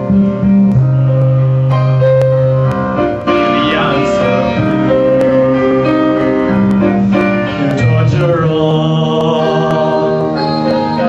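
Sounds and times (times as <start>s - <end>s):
piano accompaniment: 0.0s - 11.0s
young man singing into microphone: 3.4s - 11.0s.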